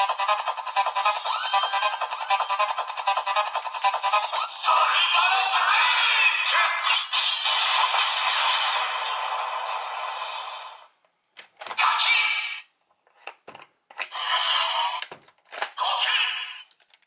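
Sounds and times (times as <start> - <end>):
toy speaker electronic music: 0.0 - 9.5, 11.7 - 12.7, 14.0 - 15.1, 15.7 - 16.6
plastic toy clicks: 15.0 - 15.8.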